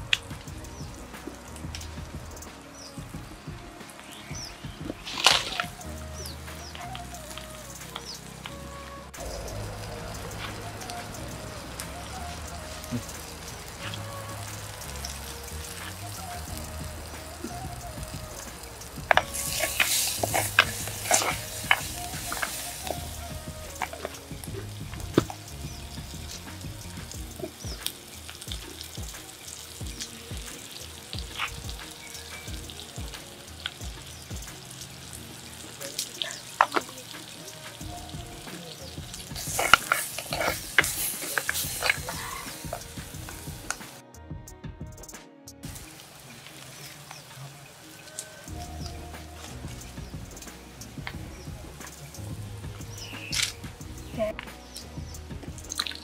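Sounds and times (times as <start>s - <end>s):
steaming food hissing: 0.0s - 44.1s, 45.6s - 56.0s
wooden spoon stirring in a pot: 9.1s - 44.0s.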